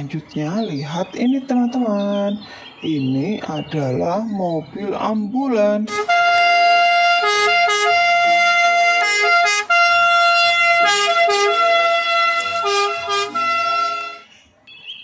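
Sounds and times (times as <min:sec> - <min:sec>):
two-tone ambulance siren: 0:06.6 - 0:14.9.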